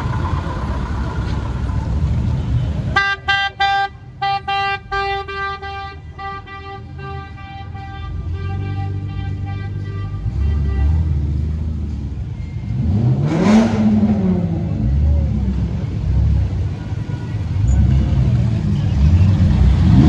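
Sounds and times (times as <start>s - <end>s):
car engines idling: 0.0s - 20.0s
car horn honking: 2.9s - 11.5s.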